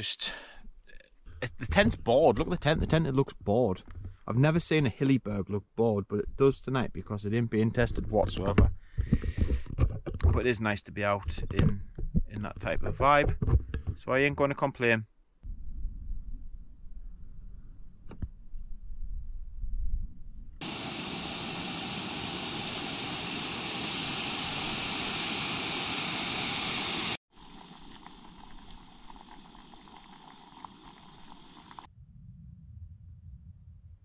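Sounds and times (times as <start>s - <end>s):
gas stove hissing: 20.6s - 31.9s
low rumble: 31.9s - 34.0s.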